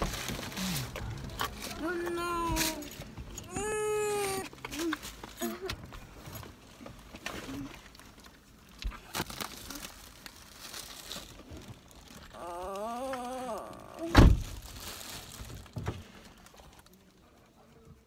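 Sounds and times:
plastic bags and cloth rustling: 0:00.0 - 0:17.7
child groaning: 0:01.8 - 0:05.8, 0:12.3 - 0:14.2.

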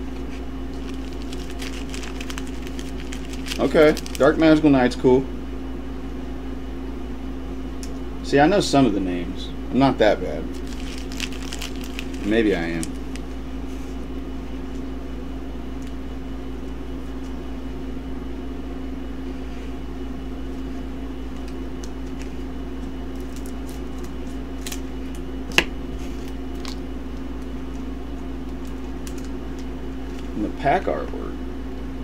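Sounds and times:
air conditioner hum: 0:00.0 - 0:32.0
scissors snipping foil: 0:00.8 - 0:04.2.

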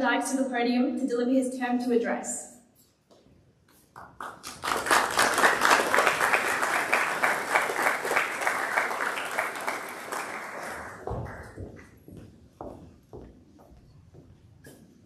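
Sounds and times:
audience applauding: 0:04.0 - 0:11.7.

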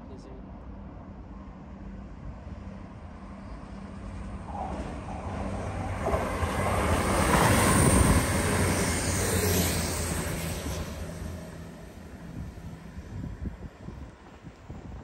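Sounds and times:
train engine hum: 0:00.0 - 0:15.0
train wheel and air rush: 0:03.7 - 0:14.9.

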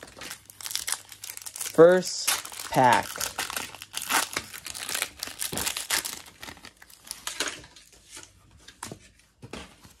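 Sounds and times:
cards rustling: 0:00.0 - 0:07.6
foil wrapper crinkling and tearing: 0:00.0 - 0:07.6.

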